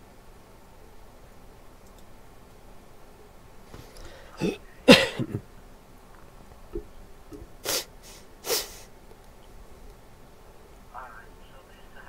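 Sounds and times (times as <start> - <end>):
person sneezing: 4.1 - 5.4, 7.6 - 8.9
breathy nasal bursts: 7.6 - 8.9.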